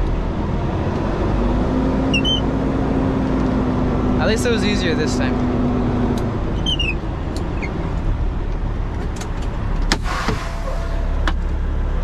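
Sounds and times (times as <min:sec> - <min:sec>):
short hiss of air: 0:10.0 - 0:10.8.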